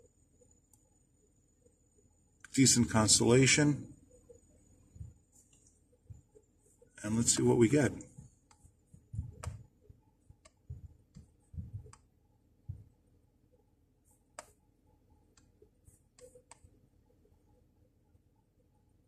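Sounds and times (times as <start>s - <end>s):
soft low thumps: 8.1s - 12.0s, 12.6s - 13.0s.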